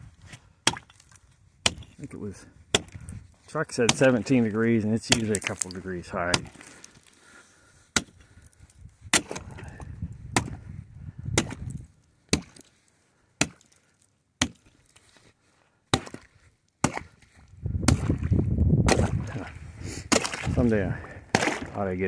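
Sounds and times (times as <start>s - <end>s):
hand tool chopping ice: 3.8s - 6.8s, 15.9s - 16.2s, 16.8s - 17.2s, 18.9s - 19.4s, 20.1s - 20.7s, 21.3s - 21.8s.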